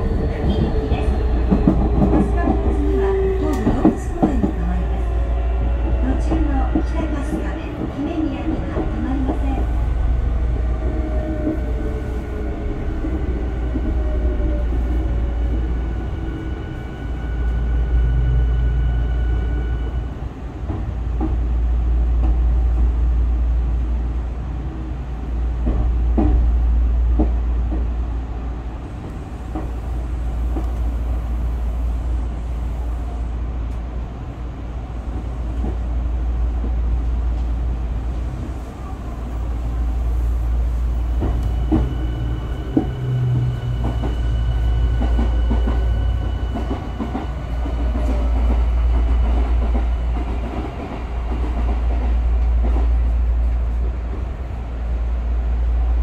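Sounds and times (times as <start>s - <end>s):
train running rumble: 0.0s - 56.0s.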